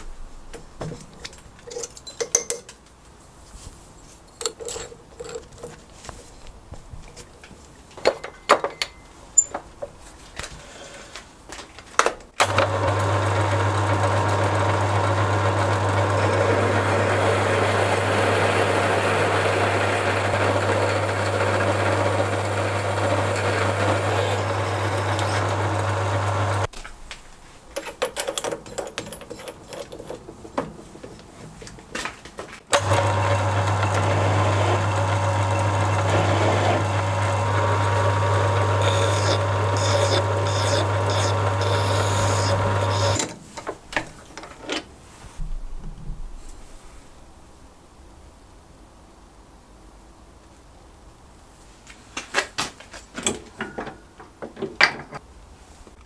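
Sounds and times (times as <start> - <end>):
handling clicks and knocks: 0.5 - 3.0, 4.3 - 10.5, 27.7 - 32.8, 52.2 - 55.2
drill bit boring into metal: 12.4 - 26.7, 32.8 - 43.3
lathe motor hum: 12.4 - 26.7, 32.7 - 43.3
hand file rasping: 38.7 - 43.2.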